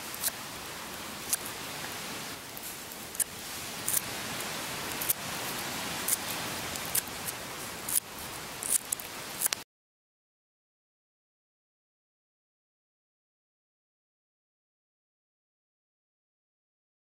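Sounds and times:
wood fire crackling: 0.0 - 9.6.

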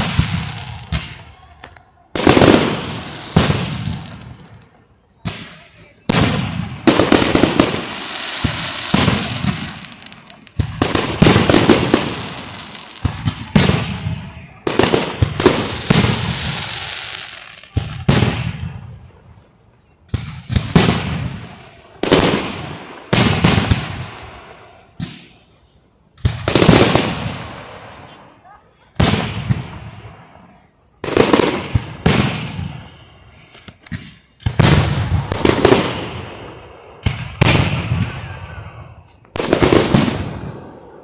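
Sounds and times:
firework bangs echoing: 0.0 - 19.2, 20.0 - 41.0.

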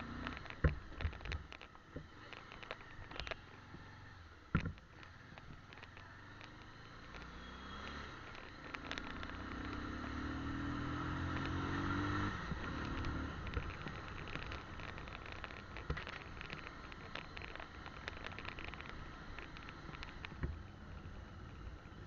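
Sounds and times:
small knocks: 0.0 - 3.8, 4.5 - 10.0, 12.5 - 21.1
motorcycle engine climbing: 0.0 - 22.0
road noise hiss: 0.0 - 22.0.

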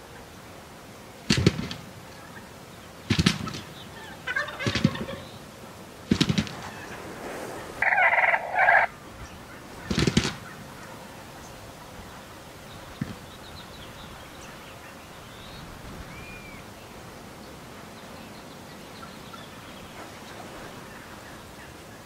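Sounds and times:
turkey gobbling: 3.5 - 5.4, 6.2 - 11.0.

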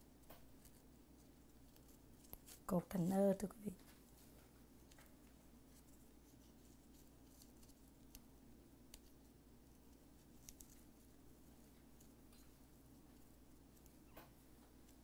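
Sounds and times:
faint ticks of ribbon tying: 8.9 - 11.1.

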